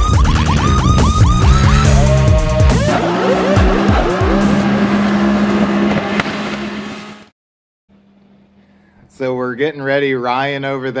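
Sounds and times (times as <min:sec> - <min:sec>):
electronic music: 0:00.0 - 0:05.2
tires screeching: 0:00.0 - 0:07.3.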